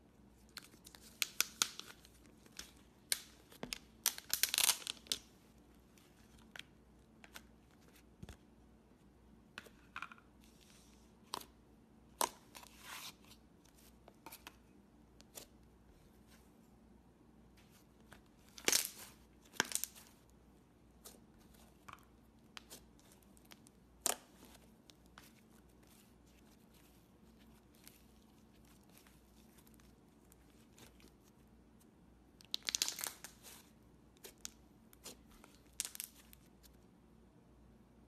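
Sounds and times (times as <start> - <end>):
slime crackling and popping: 0.6 - 5.3, 18.5 - 20.2, 32.4 - 33.6.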